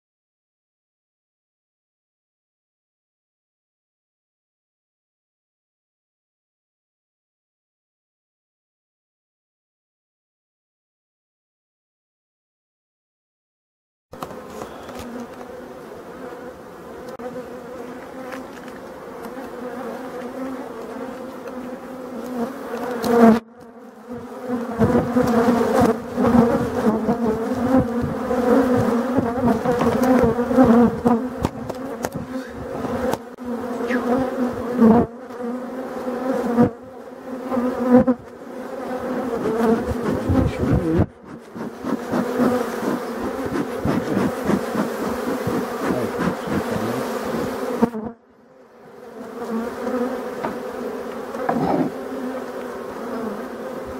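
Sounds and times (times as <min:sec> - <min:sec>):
bees buzzing: 0:14.2 - 0:53.9.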